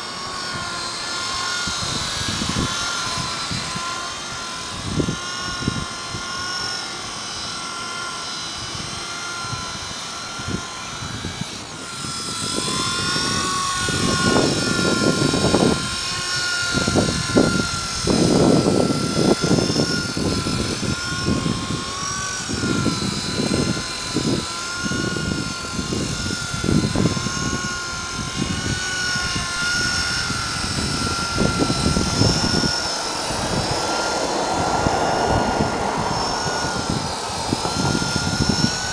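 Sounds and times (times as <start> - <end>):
rc helicopter rotor whine: 0.0 - 38.9
low rushing noise: 29.6 - 38.9.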